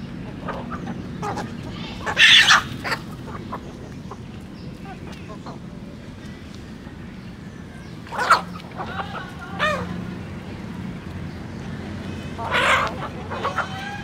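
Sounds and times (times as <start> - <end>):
chickens clucking and squawking: 0.0 - 6.0, 7.8 - 10.4, 11.8 - 14.0.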